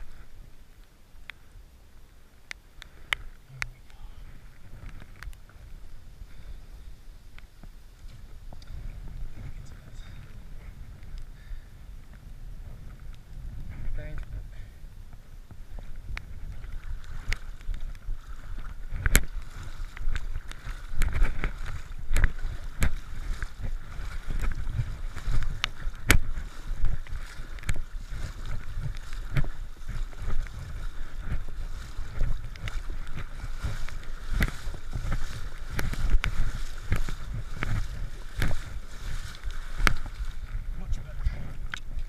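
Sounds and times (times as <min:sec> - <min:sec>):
water splashing around legs: 0:15.6 - 0:42.0.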